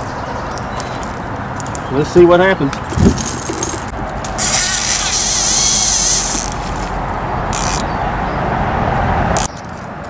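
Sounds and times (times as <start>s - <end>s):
fishing reel whirring: 4.2s - 7.9s.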